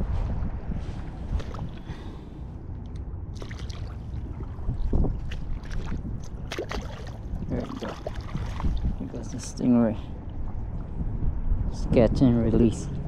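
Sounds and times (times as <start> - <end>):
wind rumbling on microphone: 0.0 - 13.0
water splashes: 1.3 - 2.1, 3.3 - 11.1.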